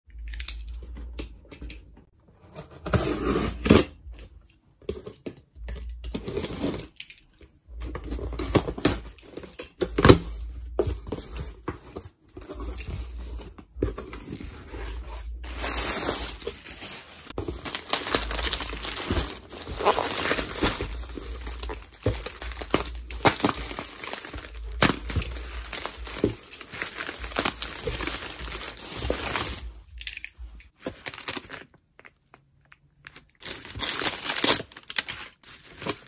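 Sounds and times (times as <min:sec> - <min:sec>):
cardboard being handled: 0:10.0 - 0:29.8
plastic packing crinkling: 0:12.4 - 0:32.4, 0:33.1 - 0:36.0
packing tape being cut and torn: 0:15.5 - 0:29.6, 0:33.4 - 0:36.0.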